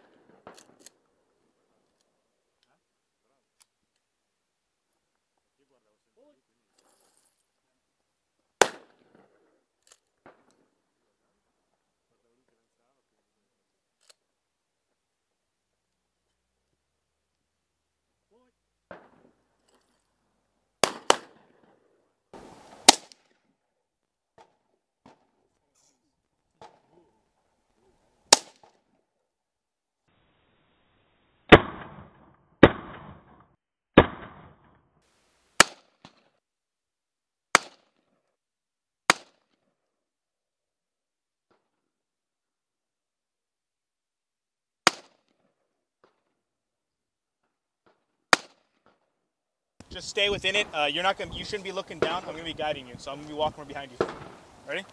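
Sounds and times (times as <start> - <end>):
gunshots: 8.6 - 9.3, 20.8 - 21.7, 22.4 - 23.3, 28.3 - 28.7, 31.5 - 34.8, 37.5 - 37.8, 44.8 - 45.2, 50.3 - 54.8
rifle shots: 8.6 - 9.3, 20.8 - 21.7, 22.7 - 23.3, 28.3 - 28.7, 31.5 - 33.4, 34.0 - 34.7, 44.8 - 45.2, 51.5 - 52.6, 53.8 - 54.5.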